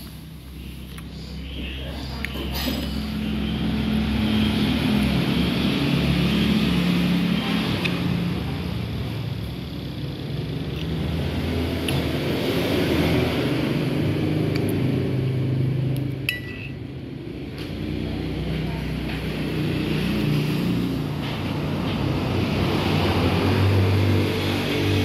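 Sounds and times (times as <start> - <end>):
road traffic going by: 0.0 - 25.0.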